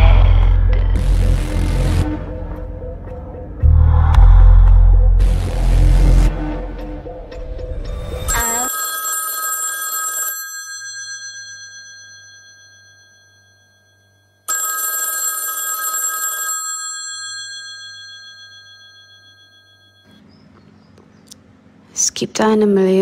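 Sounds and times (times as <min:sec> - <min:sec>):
telephone bell ringing: 0:08.3 - 0:20.2.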